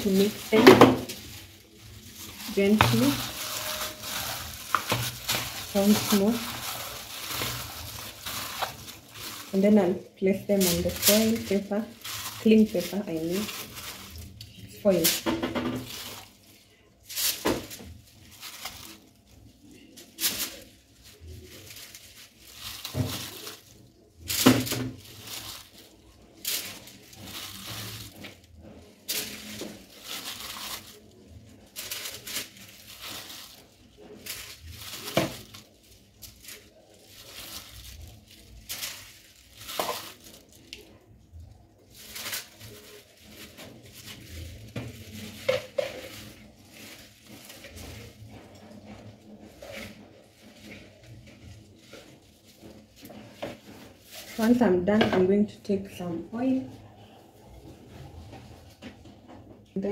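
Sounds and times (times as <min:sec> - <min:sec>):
foil crinkling: 0:00.0 - 0:55.2
plastic bowl clattering on tray: 0:15.0 - 0:16.2.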